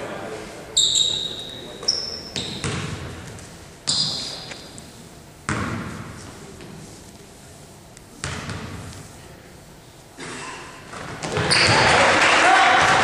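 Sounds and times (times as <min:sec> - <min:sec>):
referee's whistle: 0:00.8 - 0:02.6
basketball bouncing on wooden floor: 0:02.4 - 0:03.3, 0:05.5 - 0:06.2, 0:08.2 - 0:09.0, 0:10.9 - 0:12.0.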